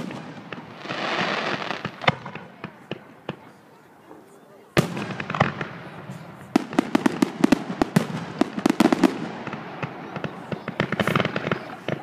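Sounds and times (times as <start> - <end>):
fireworks bangs and pops: 0.0 - 4.2, 4.8 - 12.0.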